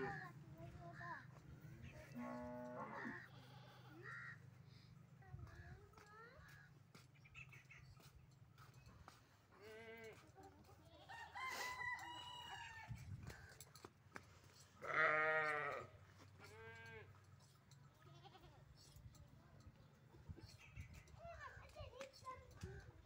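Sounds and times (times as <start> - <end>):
goat bleating: 2.1 - 4.4, 14.8 - 17.1, 18.0 - 18.6.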